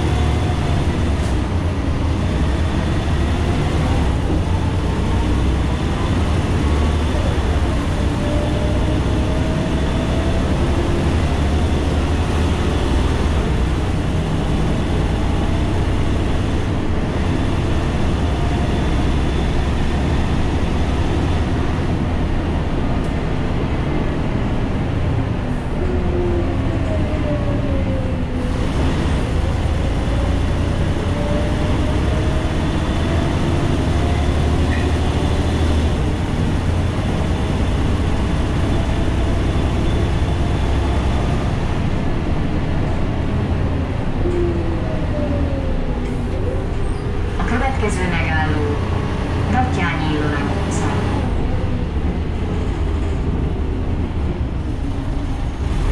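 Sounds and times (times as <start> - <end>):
bus engine drone: 0.0 - 55.9
road noise: 0.0 - 55.9.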